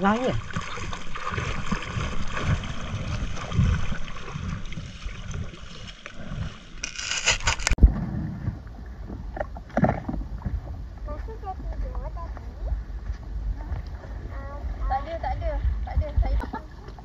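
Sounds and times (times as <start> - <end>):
wind buffeting microphone: 7.8 - 16.6.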